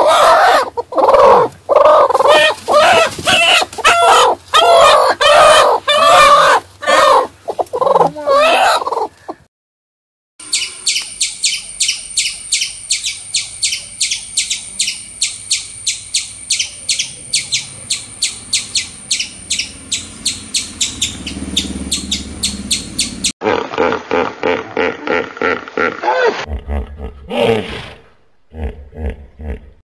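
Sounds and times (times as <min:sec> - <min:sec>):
squirrel chirping: 0:10.4 - 0:23.3.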